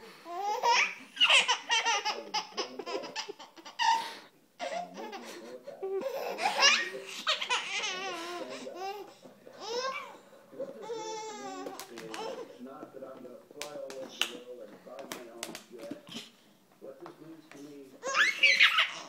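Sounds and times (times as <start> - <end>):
baby laughing: 0.3 - 12.6, 18.0 - 19.0.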